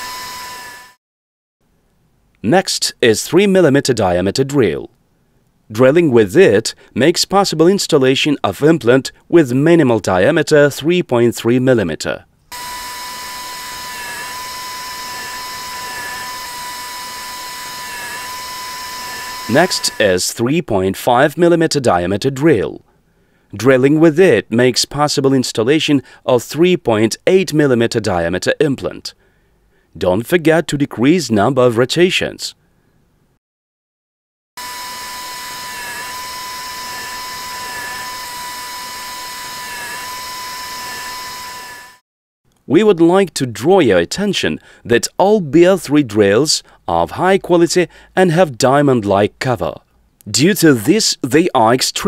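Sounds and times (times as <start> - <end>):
dental drill whine: 0.0 - 1.0, 12.5 - 20.2, 34.6 - 42.0.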